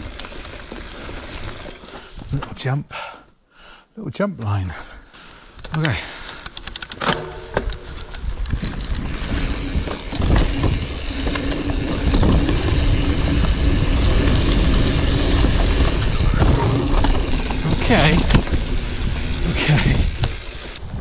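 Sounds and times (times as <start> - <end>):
tyres rumbling on dirt trail: 0.0 - 2.6, 7.4 - 21.0
bike frame rattling: 6.3 - 21.0
bicycle freewheel clicking: 8.4 - 21.0.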